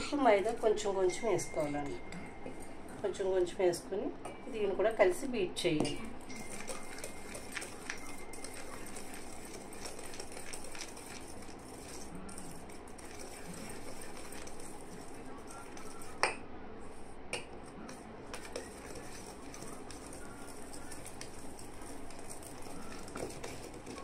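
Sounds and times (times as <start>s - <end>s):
whisk scraping metal bowl: 6.3s - 16.2s, 18.3s - 24.0s
whisk clinking on bowl: 6.3s - 16.4s, 18.4s - 24.0s.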